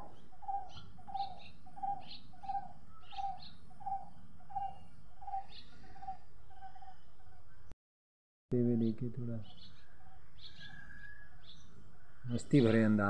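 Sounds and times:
bird repeating low note: 0.0 - 7.4
small birds chirping: 0.0 - 7.7, 8.6 - 13.0.

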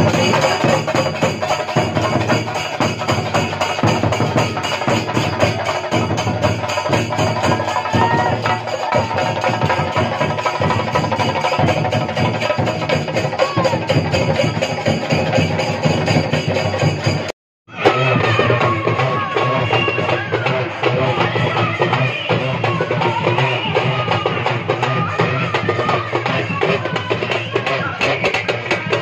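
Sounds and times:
hand cymbals clashing: 0.0 - 17.3
drum ensemble playing fast rhythm: 0.0 - 29.0.

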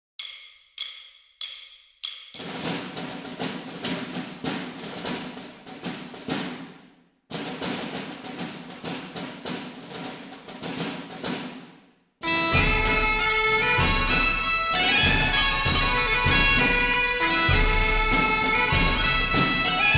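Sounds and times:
drum hits: 0.2 - 19.9
music with held notes: 12.2 - 19.9.

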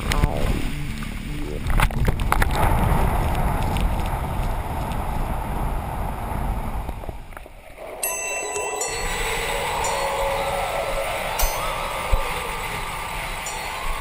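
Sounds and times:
whitewater churning: 7.6 - 14.0.

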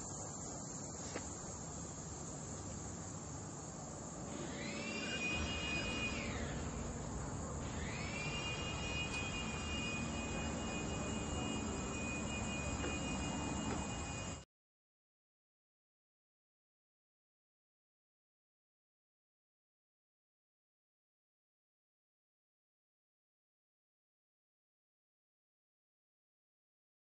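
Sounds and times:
insects droning: 0.0 - 14.4
motor whine: 3.2 - 14.4.

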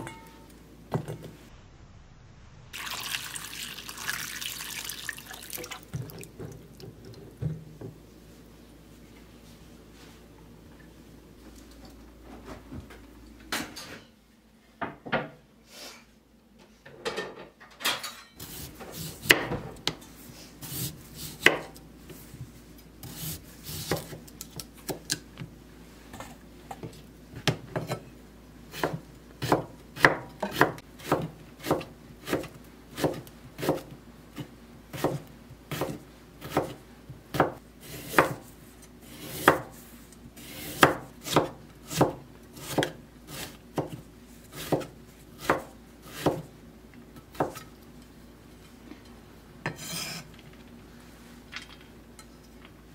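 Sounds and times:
knife slicing vegetables: 18.4 - 19.5, 20.6 - 21.8, 23.0 - 25.1, 28.7 - 46.5.

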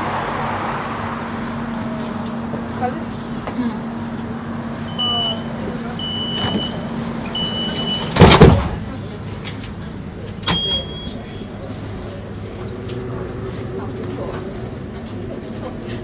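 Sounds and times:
short high warning beeps: 4.9 - 8.1, 10.5 - 11.6
doors shutting with thump: 6.2 - 8.9.

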